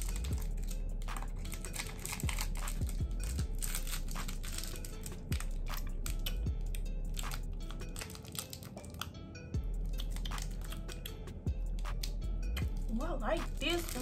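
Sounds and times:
plastic wrapper crinkling: 0.0s - 6.4s, 7.2s - 9.1s, 9.9s - 11.1s, 12.7s - 14.0s.

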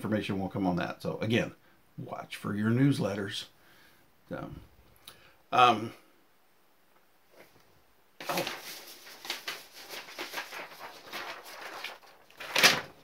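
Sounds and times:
rustling at a desk: 7.3s - 13.0s.

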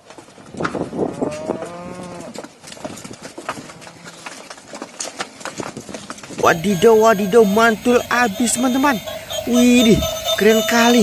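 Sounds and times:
hooves knocking on concrete: 0.0s - 11.0s
cow mooing: 1.3s - 2.4s.

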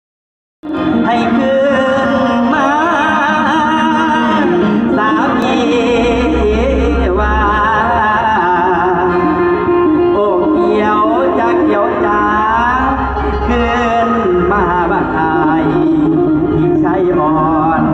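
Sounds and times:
live folk-pop band playing: 0.6s - 17.9s
person singing: 0.6s - 17.9s
deep bass note: 5.4s - 10.0s, 11.8s - 17.9s.

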